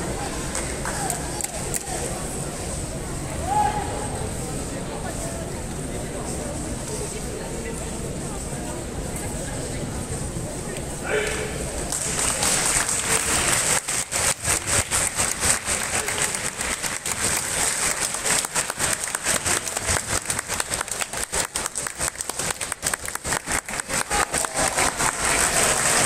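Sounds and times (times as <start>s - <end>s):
audience applauding: 11.9s - 26.0s.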